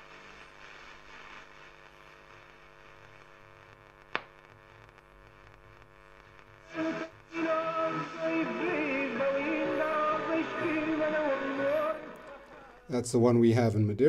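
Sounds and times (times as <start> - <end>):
sharp radio crackle: 0.0 - 13.0
radio static hiss and hum: 0.0 - 13.1
radio station audio: 6.2 - 14.0.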